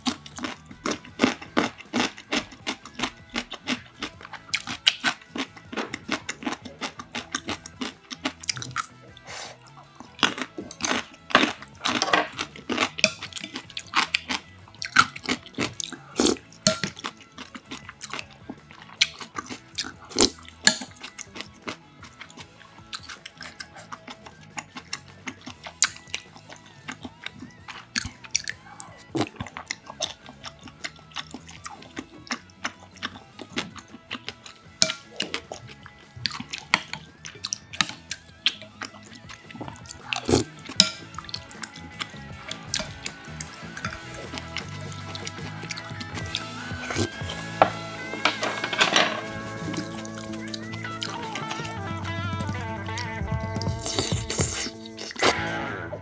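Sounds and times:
biting and chewing: 0:00.0 - 0:55.7
soft background music: 0:00.0 - 0:56.0.

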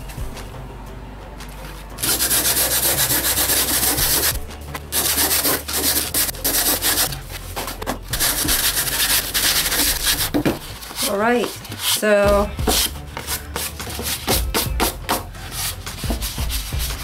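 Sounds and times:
hands rubbing sand off paper: 0:02.0 - 0:12.0.

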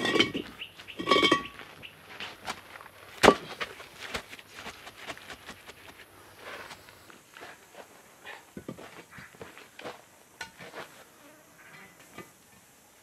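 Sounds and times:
concrete block scraping: 0:00.0 - 0:08.0.

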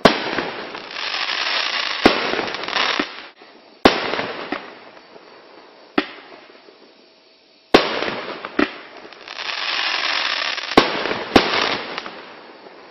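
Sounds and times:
firework bangs: 0:00.0 - 0:04.9, 0:07.7 - 0:12.9
firework hiss: 0:00.0 - 0:12.9.

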